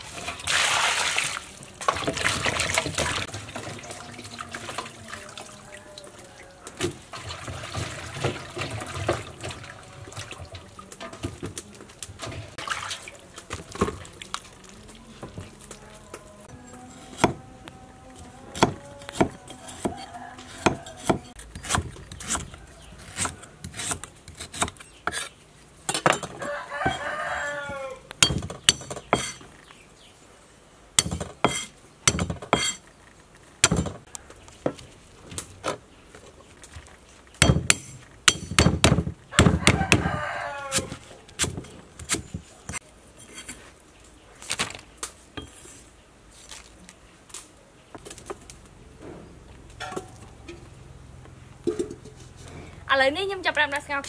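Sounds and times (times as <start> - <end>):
rooster crowing: 16.2 - 21.4, 26.3 - 28.1, 39.3 - 41.2.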